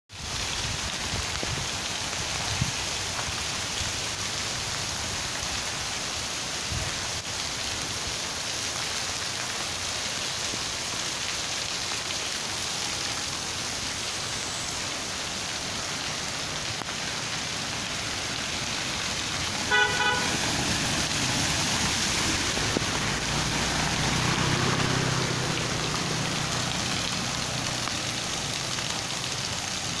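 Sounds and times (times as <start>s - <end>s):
heavy rain on street: 0.1s - 30.0s
vehicle engine passing: 15.0s - 29.8s
horn toot: 19.6s - 20.7s.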